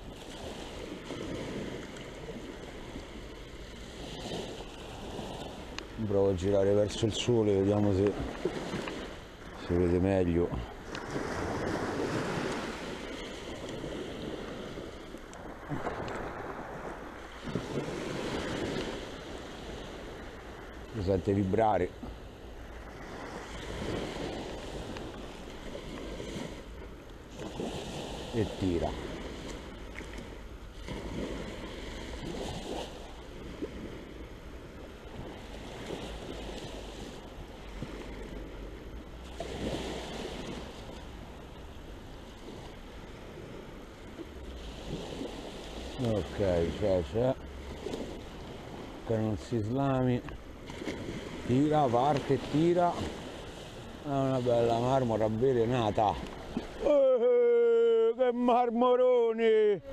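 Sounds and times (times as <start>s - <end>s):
wind rumble on microphone: 0.0s - 21.4s
wind rumbling on microphone: 0.0s - 57.0s
small waves breaking on beach: 0.0s - 59.9s
surf washing on sand: 0.0s - 59.9s.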